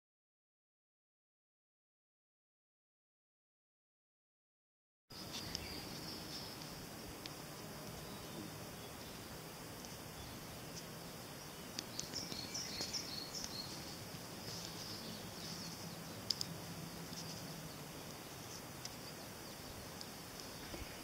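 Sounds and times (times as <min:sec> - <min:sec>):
background hiss: 0:05.1 - 0:21.0.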